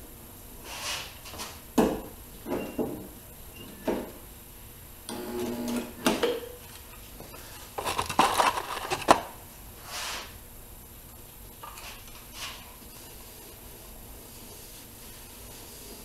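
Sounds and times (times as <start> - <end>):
stud welder buzz: 5.1 - 6.2.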